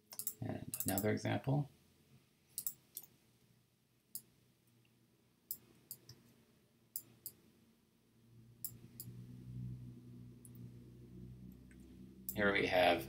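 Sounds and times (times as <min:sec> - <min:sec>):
computer mouse clicking: 0:00.1 - 0:01.1, 0:02.6 - 0:03.1.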